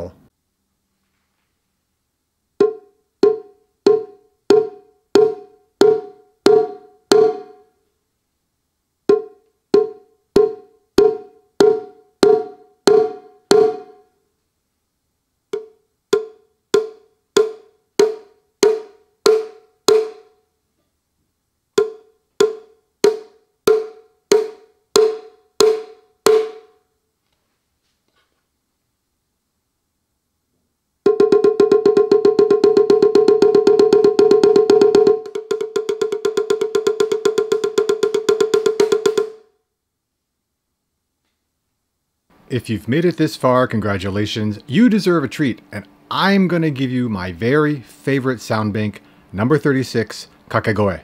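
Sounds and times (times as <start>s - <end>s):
electronic drum stick strikes: 2.6s - 7.6s, 9.1s - 14.1s, 15.5s - 20.4s, 21.8s - 26.8s, 31.0s - 39.5s.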